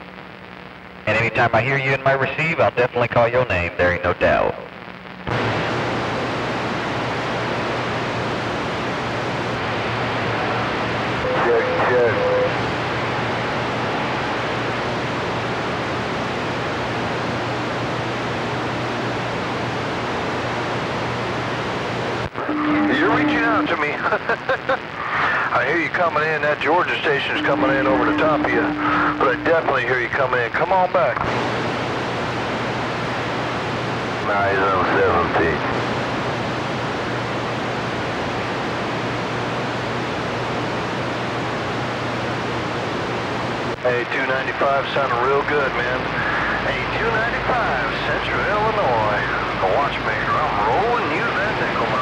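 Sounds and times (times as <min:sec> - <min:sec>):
faint low hum: 0:00.0 - 0:52.0
radio static hiss: 0:00.0 - 0:52.0
steady low tone: 0:22.4 - 0:23.9, 0:27.0 - 0:29.9.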